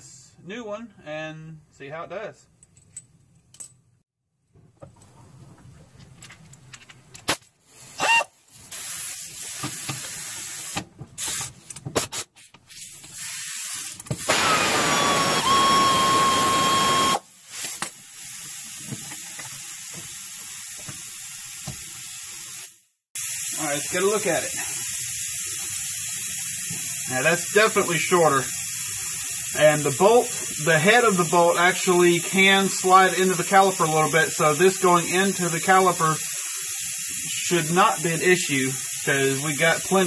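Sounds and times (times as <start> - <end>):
compressed air hissing: 7.7 - 11.6, 12.7 - 18.9, 19.6 - 40.0
air ratchet motor whining: 7.8 - 11.6, 12.7 - 22.6, 23.2 - 40.0.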